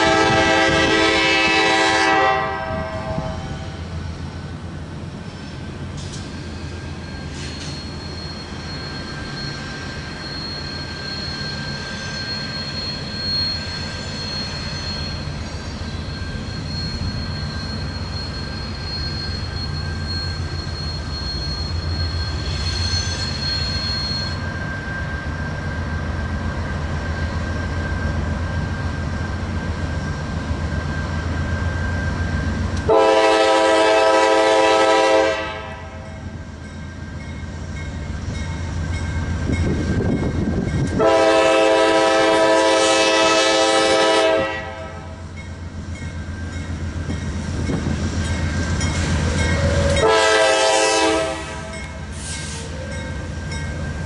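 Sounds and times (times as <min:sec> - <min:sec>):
locomotive horn blast: 0:00.0 - 0:03.8, 0:32.8 - 0:36.2, 0:40.9 - 0:45.2, 0:49.5 - 0:51.9
diesel locomotive engine rumbling: 0:00.0 - 0:54.0
high wheel squeal: 0:05.1 - 0:33.2, 0:45.2 - 0:54.0.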